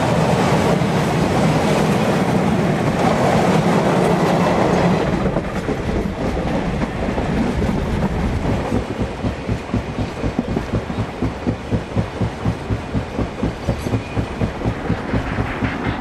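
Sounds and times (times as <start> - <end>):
rhythmic train from aboard: 0.0 - 16.0
train coaches rolling past: 0.0 - 16.0.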